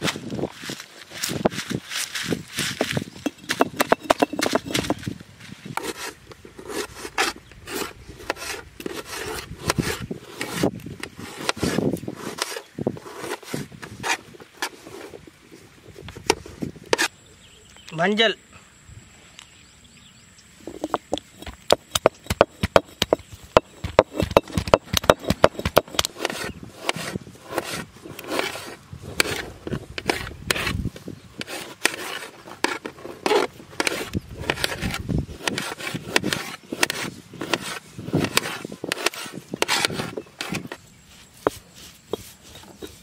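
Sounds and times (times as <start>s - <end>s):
stone roller crushing and scraping: 0.0s - 15.3s, 20.6s - 43.0s
knife chopping on steel plate: 20.8s - 28.5s.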